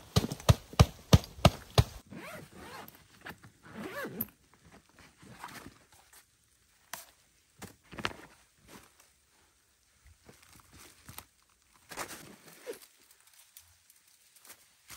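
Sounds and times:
zipper being pulled open: 2.1s - 4.3s.

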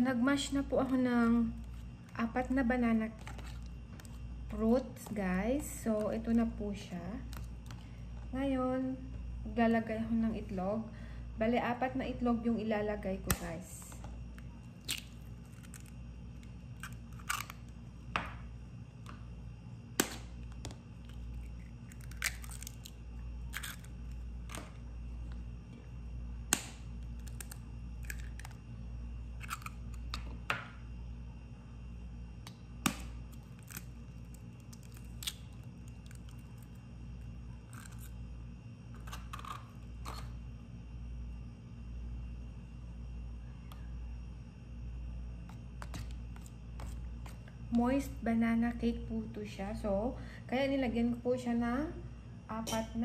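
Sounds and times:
steady low hum: 0.0s - 53.0s
eggs tapped and cracked open: 13.2s - 19.3s, 19.9s - 25.5s, 26.4s - 28.7s, 29.4s - 30.8s, 32.4s - 36.8s, 45.4s - 47.6s.

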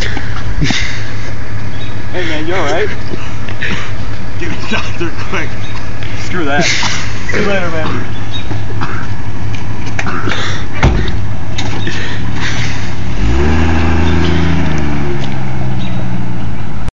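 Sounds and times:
car engine pulling away: 8.0s - 16.9s
car door slamming: 10.8s - 11.8s.

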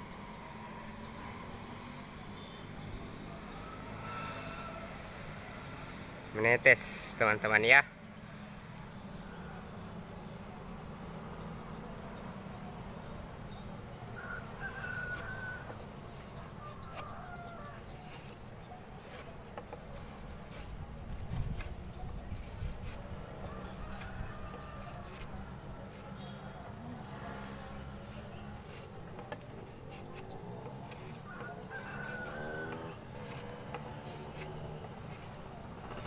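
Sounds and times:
rooster crowing: 3.6s - 5.0s, 14.2s - 15.8s, 30.9s - 33.6s.

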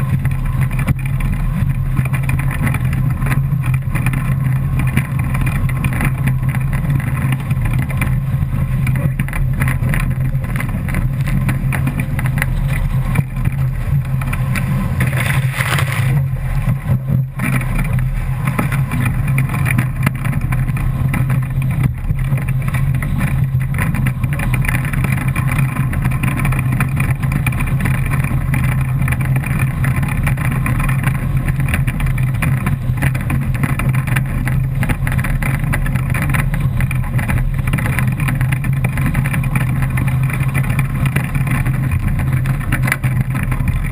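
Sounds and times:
deep rumble: 0.0s - 43.9s
water spray hitting camera: 15.0s - 16.2s.

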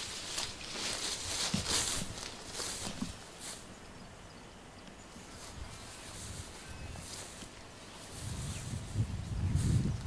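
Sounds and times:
footsteps swishing through grass: 0.0s - 3.8s, 5.2s - 10.0s
faint bird chirps: 3.7s - 9.7s.

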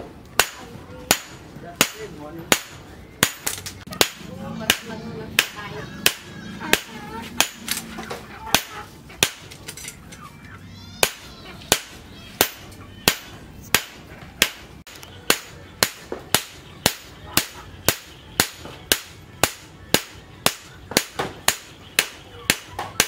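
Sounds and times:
hammer striking steel on anvil: 11.0s - 22.9s.

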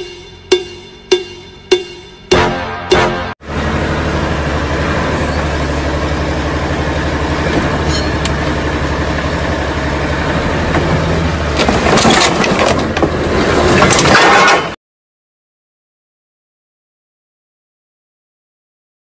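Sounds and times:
van engine idling: 3.4s - 12.0s
metal cracking and crunching: 11.5s - 14.8s.

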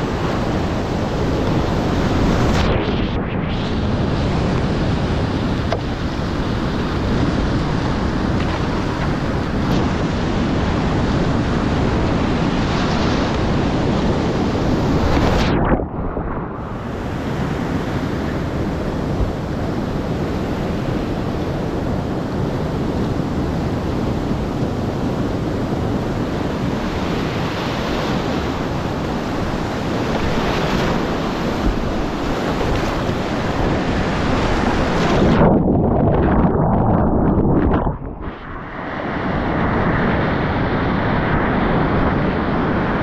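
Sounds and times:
wind buffeting microphone: 0.0s - 43.0s
low rumble: 35.4s - 39.4s.

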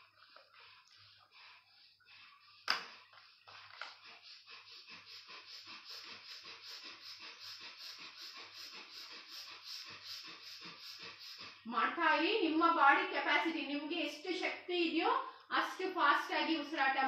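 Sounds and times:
forceful rhythmic breathing: 0.0s - 17.0s.

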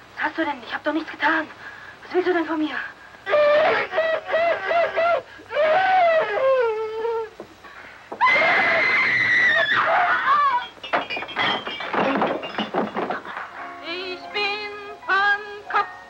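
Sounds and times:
woman shrieking: 3.3s - 7.3s, 8.2s - 10.7s.

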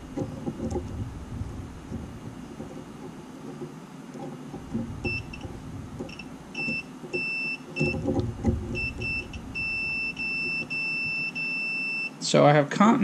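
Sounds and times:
probes clicking and clattering: 0.0s - 9.5s
multimeter continuity beeps: 5.0s - 5.5s, 6.1s - 12.2s.

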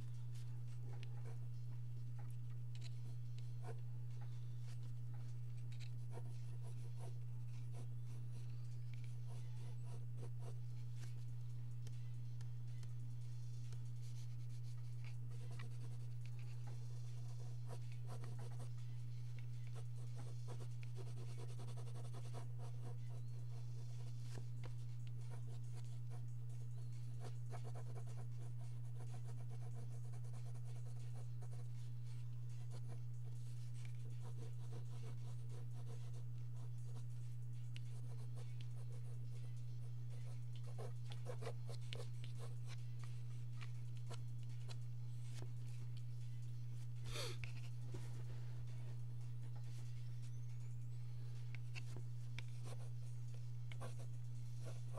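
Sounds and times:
steady low hum: 0.0s - 54.9s
pencil scratching on paper: 2.8s - 11.2s, 13.6s - 45.4s, 51.6s - 53.0s, 53.7s - 54.9s.

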